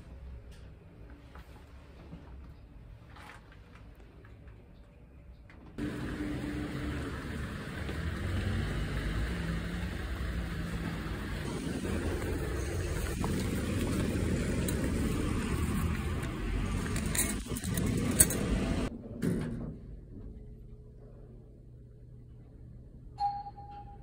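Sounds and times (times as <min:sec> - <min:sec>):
road traffic rumble: 0:05.8 - 0:18.9.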